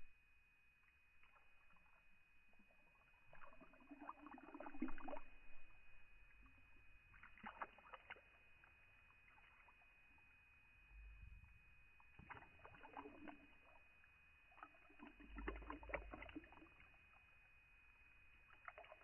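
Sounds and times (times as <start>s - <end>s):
wet gurgling and spluttering: 1.2s - 5.7s, 6.4s - 10.0s, 12.0s - 13.9s, 14.5s - 17.2s, 18.5s - 19.0s.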